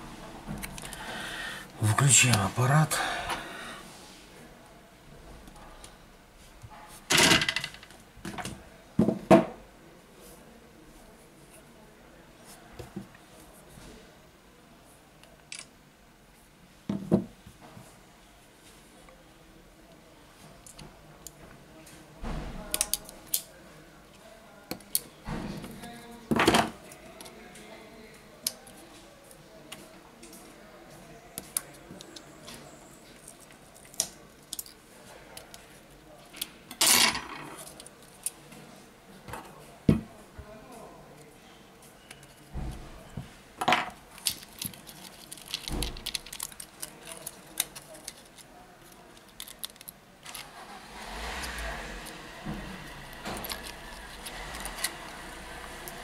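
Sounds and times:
small parts clicking and tapping: 44.2s - 50.4s, 53.1s - 55.0s.

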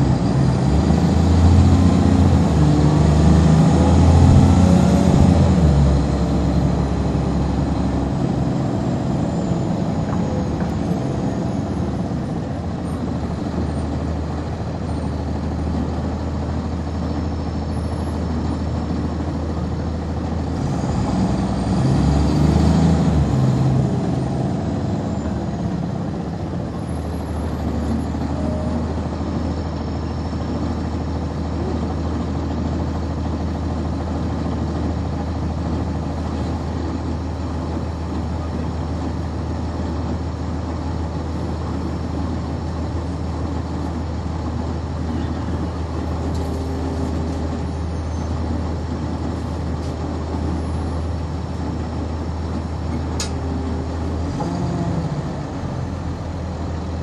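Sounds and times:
diesel bus engine drone: 0.0s - 57.0s.

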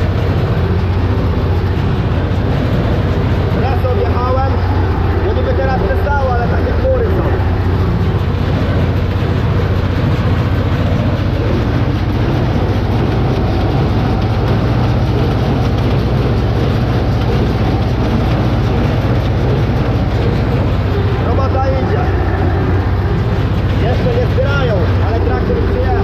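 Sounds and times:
hay baler running: 0.0s - 26.0s
tractor engine under load: 0.0s - 26.0s.

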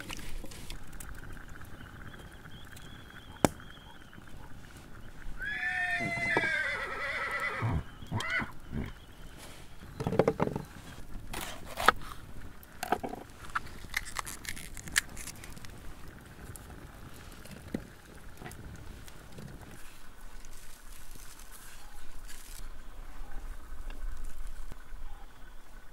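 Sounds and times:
animal call: 1.8s - 4.7s, 5.3s - 9.0s.

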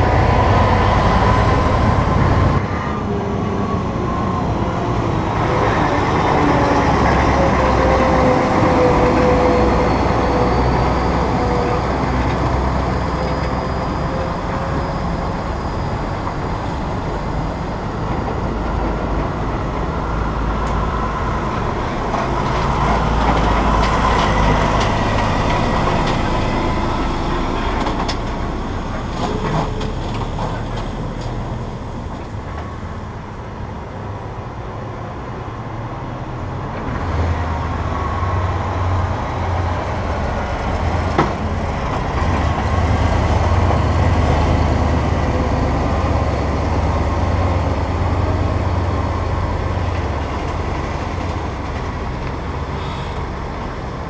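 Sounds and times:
truck engines running under load: 0.0s - 54.0s
trailer tyres rolling: 5.3s - 33.3s.

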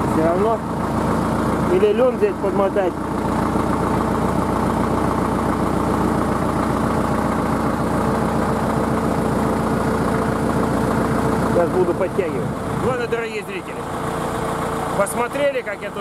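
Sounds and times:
tractor diesel engine idling: 0.0s - 16.0s.

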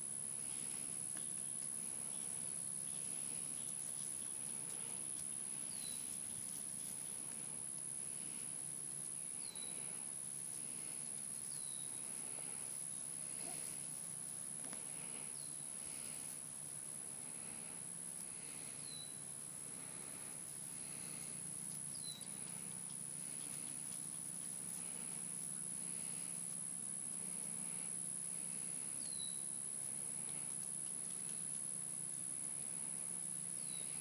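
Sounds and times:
insect drone: 0.0s - 34.0s.

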